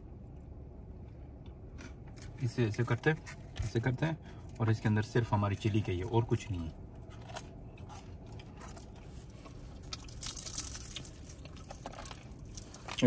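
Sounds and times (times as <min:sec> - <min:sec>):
soft chewing: 0:06.6 - 0:13.0
crisp pastry crunching: 0:06.9 - 0:13.0.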